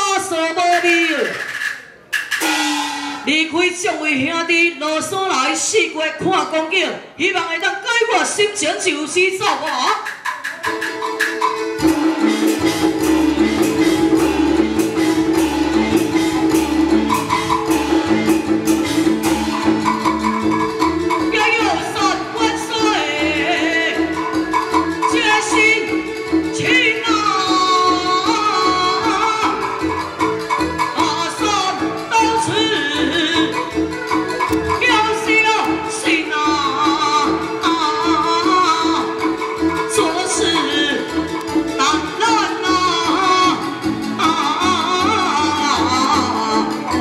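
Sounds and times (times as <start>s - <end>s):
steady percussion beat: 0.0s - 4.0s, 9.4s - 47.0s
instrumental accompaniment: 0.1s - 4.4s, 9.2s - 47.0s
sustained melody: 10.6s - 47.0s
moving bass line: 11.8s - 47.0s
person singing opera aria: 21.3s - 30.0s, 30.8s - 33.8s, 34.7s - 47.0s.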